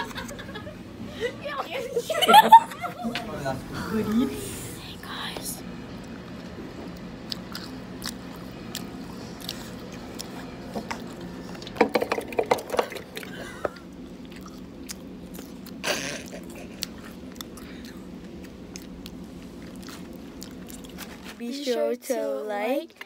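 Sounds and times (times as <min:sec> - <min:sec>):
steady low hum: 0:00.0 - 0:23.0
chewing and biting food: 0:06.0 - 0:11.8, 0:12.8 - 0:21.4.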